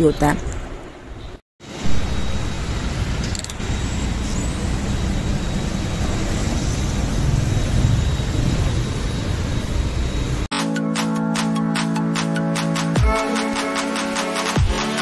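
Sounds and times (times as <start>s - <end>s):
road traffic rumble: 0.0s - 10.5s.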